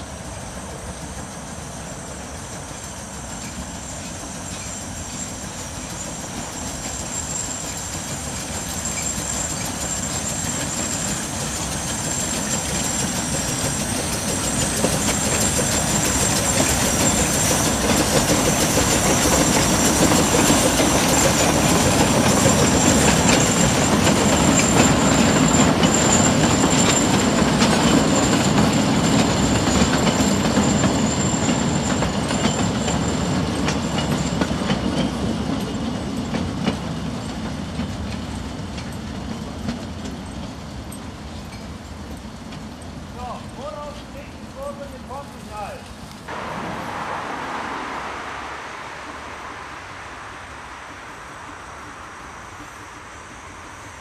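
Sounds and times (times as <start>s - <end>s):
clattering train wheels: 0.0s - 46.4s
steam locomotive passing: 0.0s - 54.0s
thin high steady tone: 46.3s - 54.0s.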